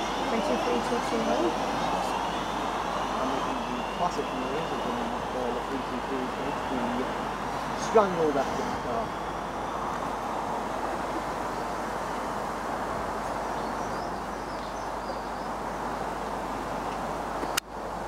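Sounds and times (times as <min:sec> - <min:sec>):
train rumbling past: 0:06.1 - 0:11.7.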